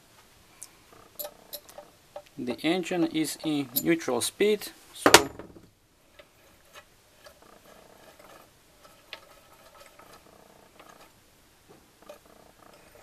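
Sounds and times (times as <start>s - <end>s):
gears spinning with faint whir: 6.1s - 11.2s, 12.0s - 13.0s.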